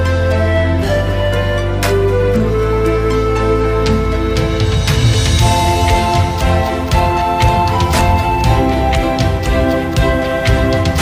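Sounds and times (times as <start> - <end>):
slow soft instrumental music: 0.0 - 11.0
soft percussive hit: 5.9 - 9.5.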